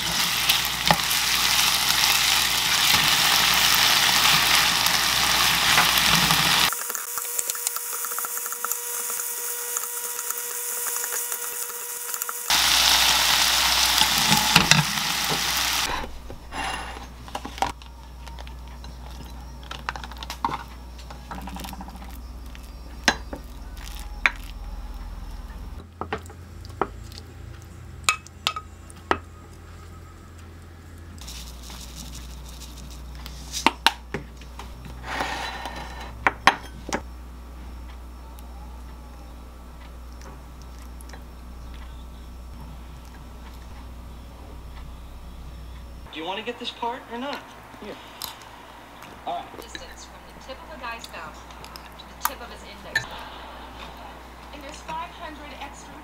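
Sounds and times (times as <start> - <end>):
food sizzling in a pan: 0.0 - 17.1
utensils clicking on dishes: 5.6 - 12.5.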